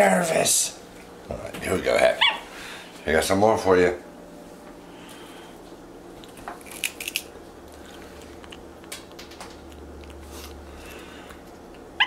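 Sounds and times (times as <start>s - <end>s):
monkey chewing crunchy food: 6.2s - 11.9s.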